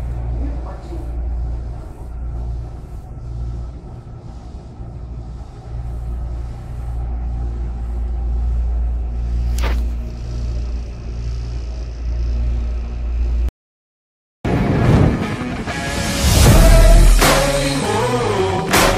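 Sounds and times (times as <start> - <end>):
train rumbling on rails: 0.0 - 13.5
short whoosh: 8.7 - 10.6.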